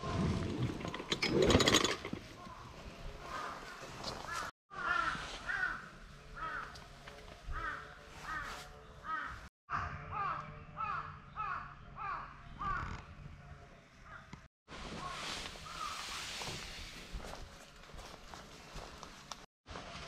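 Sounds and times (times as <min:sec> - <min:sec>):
crows cawing: 0:03.3 - 0:06.9, 0:07.5 - 0:13.0.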